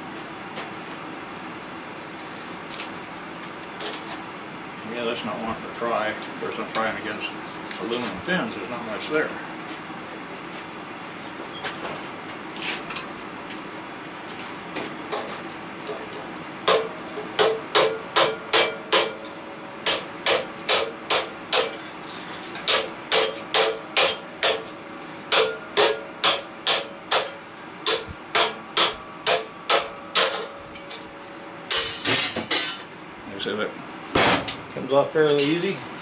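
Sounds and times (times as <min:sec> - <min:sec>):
hammer striking metal: 0:16.6 - 0:21.8, 0:22.6 - 0:24.7, 0:25.3 - 0:30.6.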